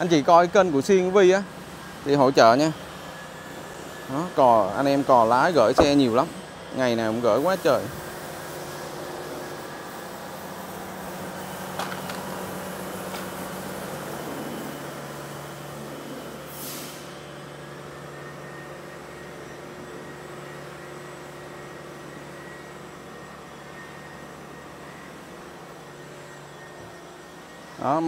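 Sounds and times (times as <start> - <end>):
steady mechanical hum: 0.0 - 28.0
short hiss of air: 16.5 - 17.2.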